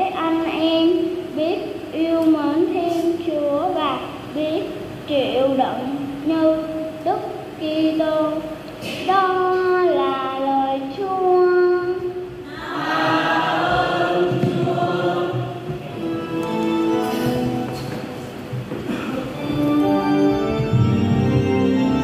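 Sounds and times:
choir singing long notes: 12.5 - 17.8.

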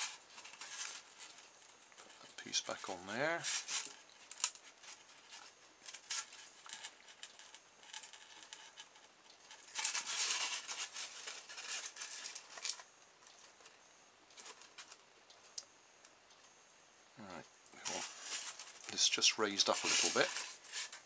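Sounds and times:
scratching on foam: 4.6 - 12.7, 17.8 - 21.0.

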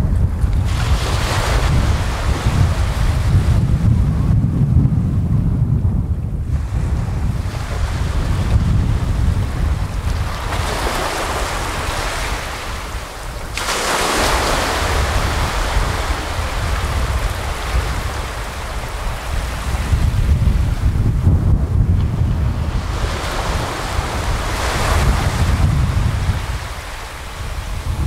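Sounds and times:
low wind rumble on microphone: 0.0 - 28.0
small waves breaking on beach: 6.5 - 20.2, 22.5 - 28.0.

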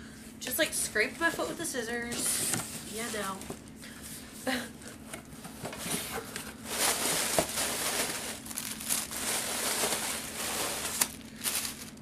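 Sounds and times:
plastic packing crinkling: 6.5 - 12.0.

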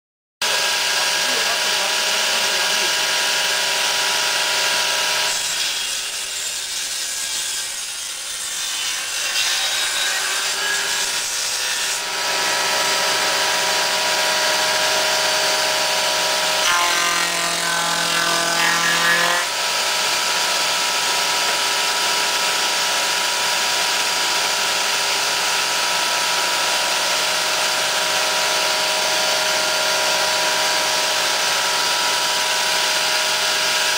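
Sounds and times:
spindle moulder cutting wood: 13.9 - 20.2.

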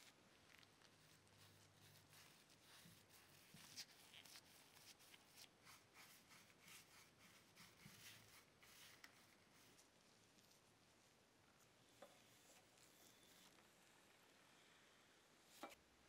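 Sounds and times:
faint scratching strokes: 0.0 - 15.8.

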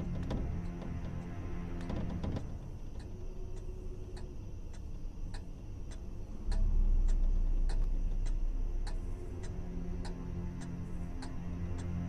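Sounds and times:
deep low rumble: 0.0 - 12.0
clock ticking: 2.9 - 12.0.

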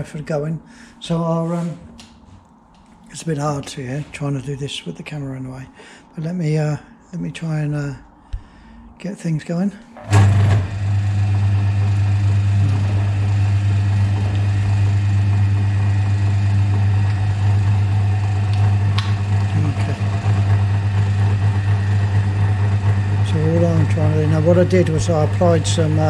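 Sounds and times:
lathe humming: 9.9 - 26.0.

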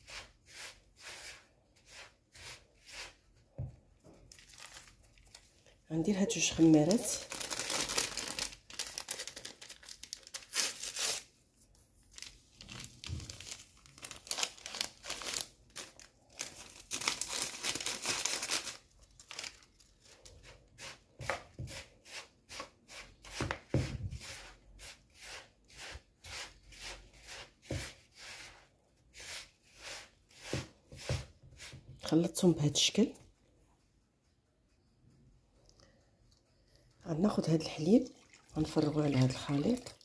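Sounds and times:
hands rubbing semolina in a bowl: 0.0 - 3.5, 21.7 - 32.1.

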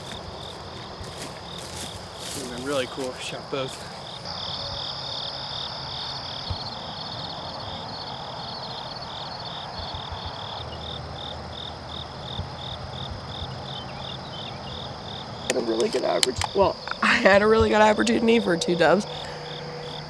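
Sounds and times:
insects chirping: 0.0 - 20.0
steady high hum: 10.2 - 20.0.

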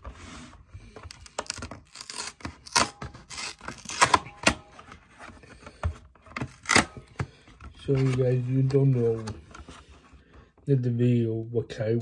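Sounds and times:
cardboard carton tearing: 1.2 - 4.3.

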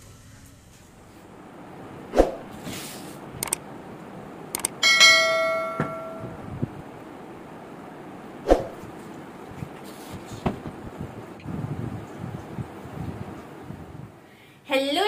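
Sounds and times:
sharp clicks: 3.4 - 3.6, 4.5 - 4.8
metal bell ringing: 4.8 - 6.4.

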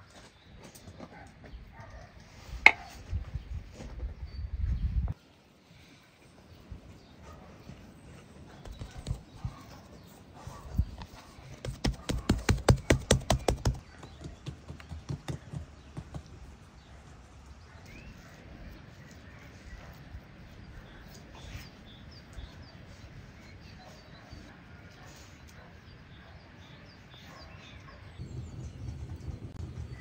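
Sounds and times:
rapid sharp knocks: 11.6 - 13.8.

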